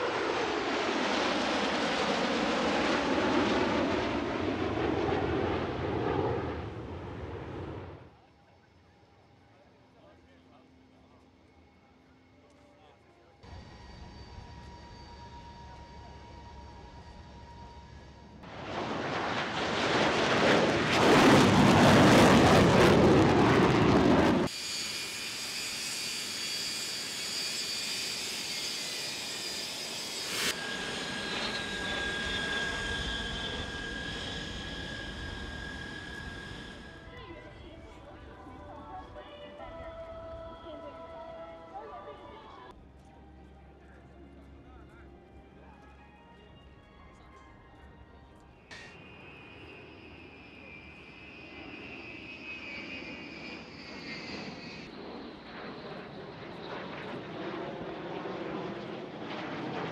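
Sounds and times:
fighter jets flying past: 0:00.0 - 0:08.2, 0:13.5 - 0:38.1, 0:48.7 - 0:59.9.

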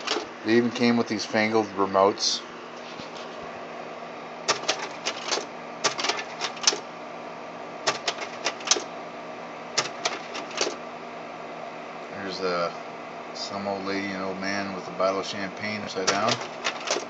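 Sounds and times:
slide projector mechanism clattering: 0:00.0 - 0:00.3, 0:04.5 - 0:06.8, 0:07.9 - 0:08.9, 0:09.8 - 0:10.8, 0:16.0 - 0:17.0
cooling fan hum: 0:00.0 - 0:17.0.

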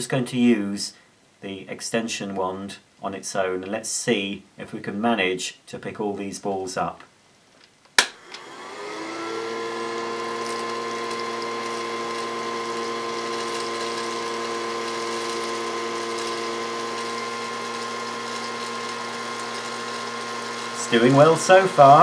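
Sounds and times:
small toy vacuum motor whining: 0:08.2 - 0:22.0.

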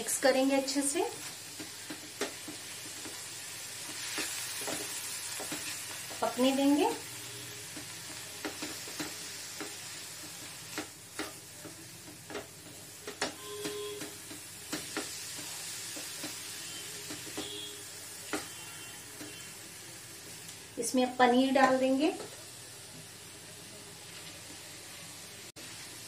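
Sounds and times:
vegetables sizzling in a wok: 0:00.0 - 0:26.0
spatula scraping and tapping pan: 0:01.5 - 0:06.4, 0:07.7 - 0:17.7, 0:18.3 - 0:19.5.

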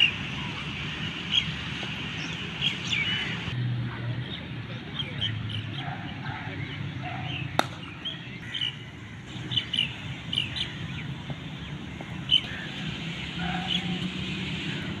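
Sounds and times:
birds chirping: 0:00.0 - 0:15.0
cricket bat striking ball: 0:07.6 - 0:08.0.

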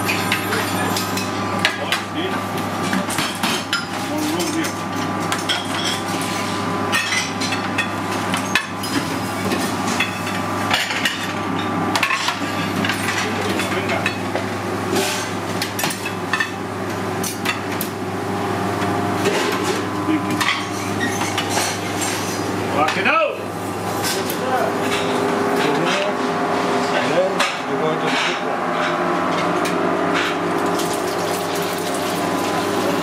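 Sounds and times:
machine hum: 0:11.3 - 0:33.0
plates and knives clinking: 0:19.2 - 0:23.0.

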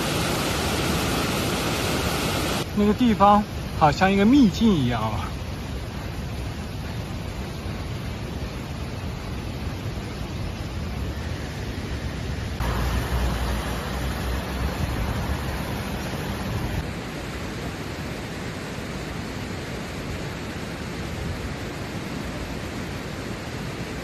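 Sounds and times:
white-water river rushing: 0:00.0 - 0:10.9, 0:12.6 - 0:24.0
wind rumble: 0:05.3 - 0:18.0
road noise: 0:12.0 - 0:16.9.

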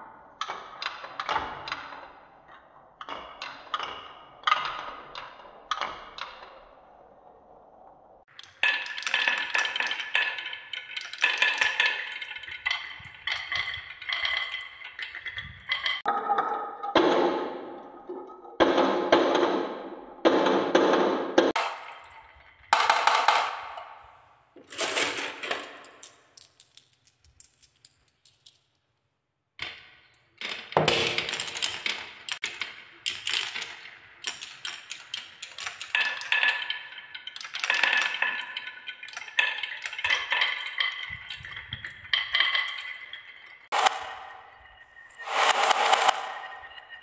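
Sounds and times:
marbles rolling on wooden tracks: 0:00.4 - 0:18.9, 0:21.5 - 0:28.8, 0:29.6 - 0:47.0
marbles clinking together: 0:08.3 - 0:16.4, 0:24.8 - 0:28.7, 0:30.5 - 0:47.0
marbles dropping into plastic: 0:08.4 - 0:16.1, 0:21.6 - 0:28.8, 0:29.6 - 0:44.6.

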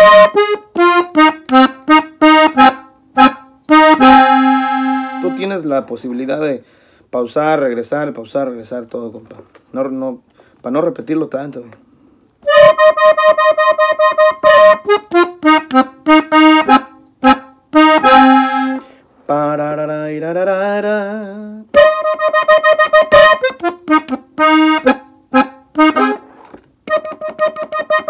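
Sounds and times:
button accordion playing: 0:00.0 - 0:05.7, 0:12.4 - 0:19.0, 0:21.7 - 0:28.0.

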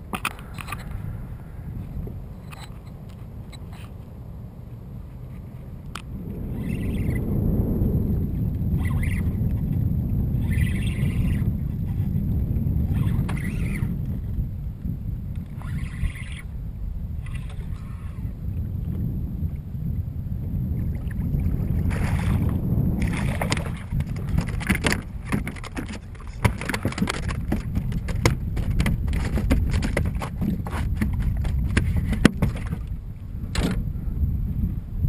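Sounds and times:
low rumble of water and wind: 0:00.0 - 0:35.0
gear clicking and clattering: 0:24.0 - 0:32.6.

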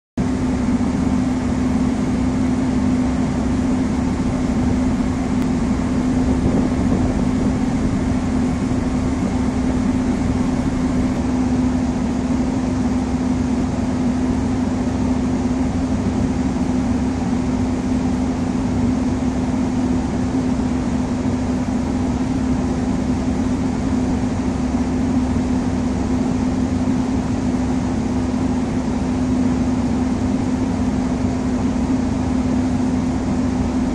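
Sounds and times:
machinery hum: 0:00.2 - 0:33.9
rushing noise: 0:02.6 - 0:12.9.

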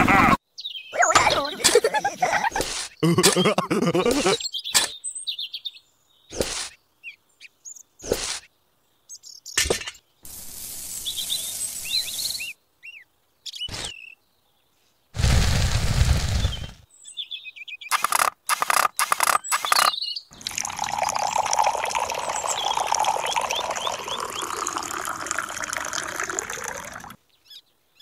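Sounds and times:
birds chirping: 0:00.0 - 0:10.3, 0:10.9 - 0:14.9, 0:16.3 - 0:28.0
trowel scraping sand: 0:02.5 - 0:03.0, 0:06.3 - 0:06.8, 0:08.0 - 0:08.5.

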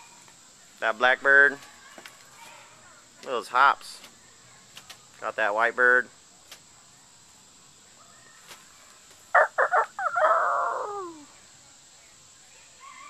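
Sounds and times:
rooster crowing: 0:09.3 - 0:11.3.

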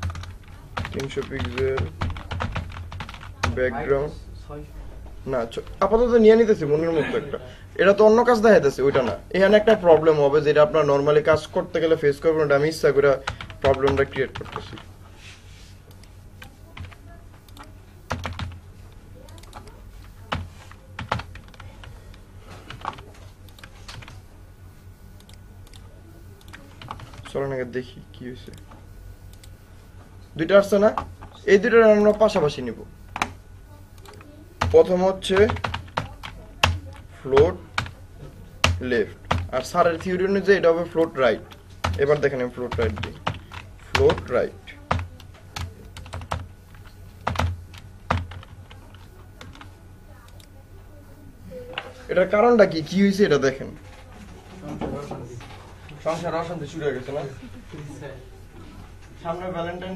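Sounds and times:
computer keyboard typing: 0:00.0 - 0:03.7, 0:08.2 - 0:10.2, 0:12.5 - 0:14.9, 0:15.8 - 0:24.3, 0:25.1 - 0:27.4, 0:30.5 - 0:50.6
low steady hum: 0:00.0 - 0:59.9
keyboard keystrokes clicking: 0:15.9 - 0:18.6, 0:19.2 - 0:24.1.

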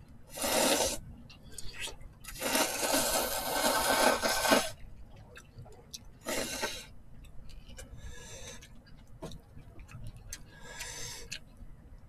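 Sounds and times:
soft eating noises: 0:00.0 - 0:12.0
noodle slurp: 0:00.3 - 0:01.0, 0:01.7 - 0:04.8, 0:06.2 - 0:06.9.

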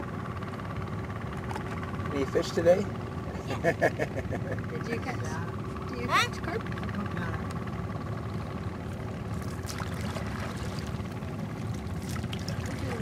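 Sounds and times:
steady low rumble: 0:02.8 - 0:13.0
paddle splashing water: 0:08.9 - 0:13.0.

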